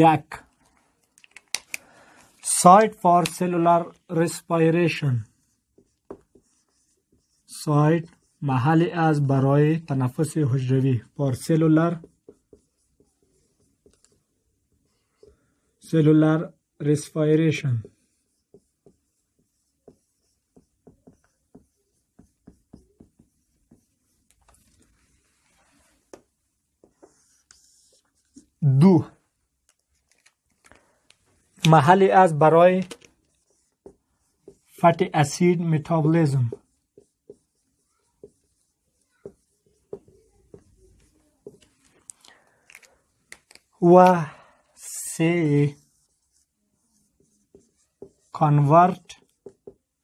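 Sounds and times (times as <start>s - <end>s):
marker pen on whiteboard: 0.0s - 50.0s
marker squeaks: 26.8s - 28.5s, 36.1s - 42.1s.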